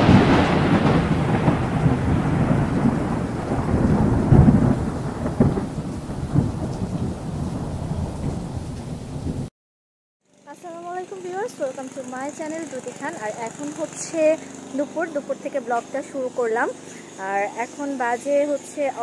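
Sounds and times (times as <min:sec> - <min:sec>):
heavy rain: 0:00.0 - 0:09.5
rolling thunder: 0:00.0 - 0:09.5.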